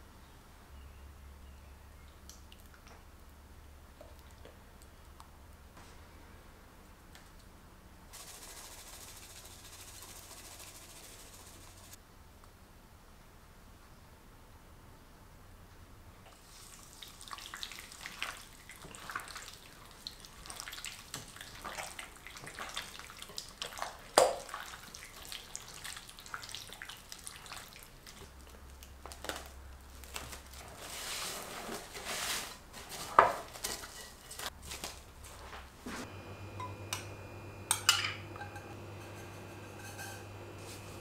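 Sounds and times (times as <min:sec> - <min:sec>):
wet squelching of chicken in marinade: 0:16.4 - 0:29.4.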